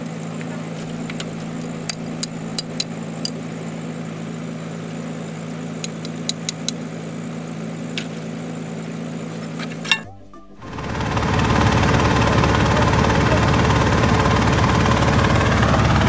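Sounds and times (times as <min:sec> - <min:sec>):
drilling rig engine running: 0:00.6 - 0:03.3, 0:10.6 - 0:16.0
sharp clicks: 0:00.8 - 0:03.4.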